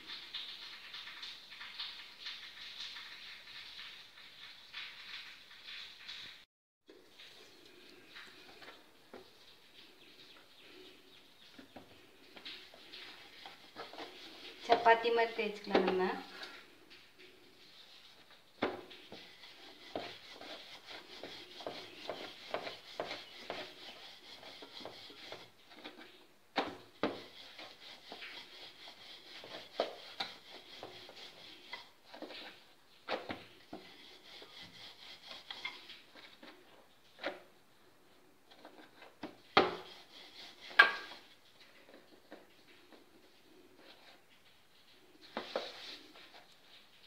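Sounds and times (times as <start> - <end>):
rolling pin rolling dough: 11.6 - 16.5, 18.1 - 36.6, 38.6 - 42.5.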